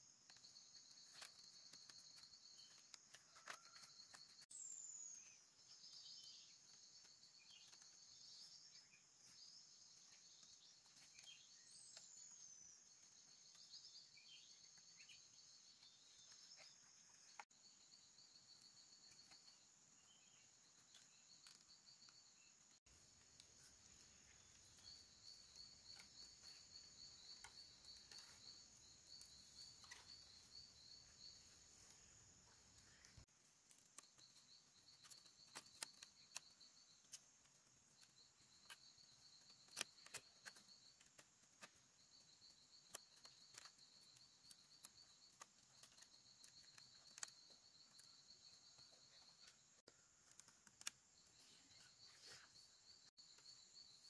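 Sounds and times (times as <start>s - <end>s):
insects trilling: 0.0s - 54.0s
bird chirps: 23.4s - 37.3s.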